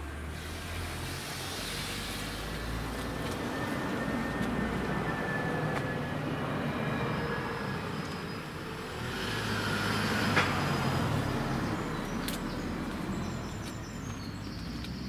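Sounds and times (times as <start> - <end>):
car driving past: 0.0 - 15.0.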